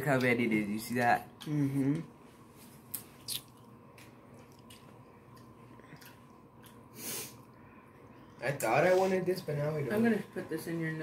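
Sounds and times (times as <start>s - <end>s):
chewing: 2.9s - 6.9s.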